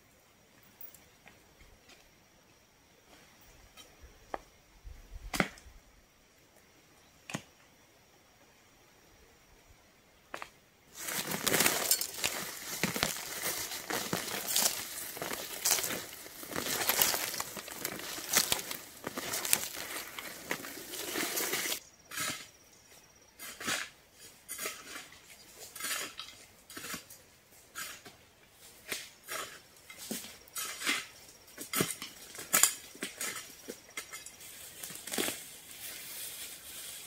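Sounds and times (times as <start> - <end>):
trowel scraping gravelly soil: 10.9 - 22.5, 23.4 - 37.0
stones clinking against metal trowel: 11.0 - 21.8.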